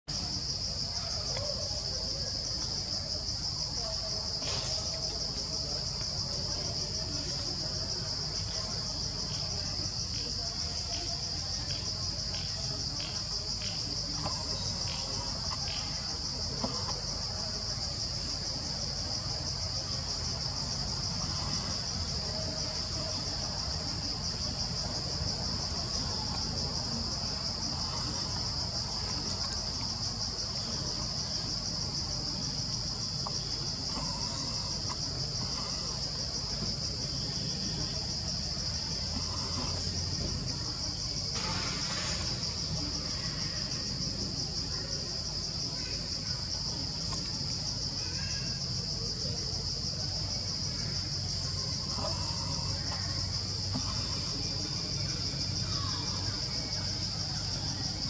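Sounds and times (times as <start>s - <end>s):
high-pitched insect chorus: 0.1s - 58.0s.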